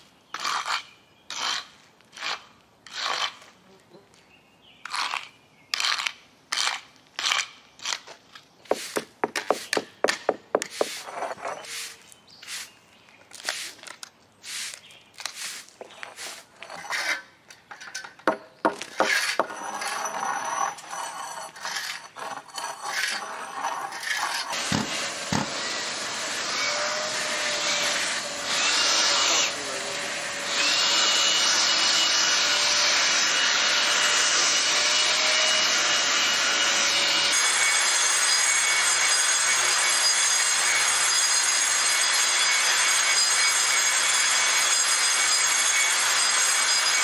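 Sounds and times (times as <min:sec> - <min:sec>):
scraper scraping concrete: 0:00.4 - 0:03.6, 0:04.8 - 0:17.4, 0:18.7 - 0:29.8.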